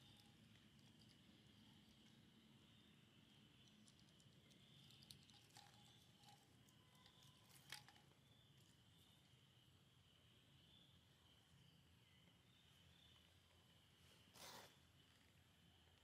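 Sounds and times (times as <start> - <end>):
insects droning: 0.0 - 16.0
light clicks and crackles: 3.6 - 8.8.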